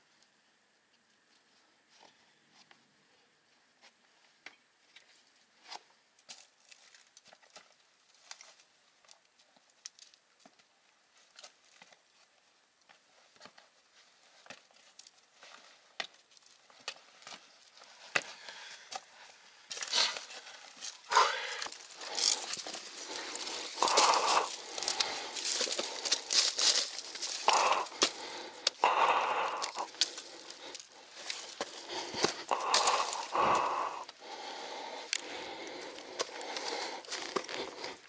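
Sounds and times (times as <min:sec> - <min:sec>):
scrambling over crumbly sandstone: 0:13.3 - 0:38.0.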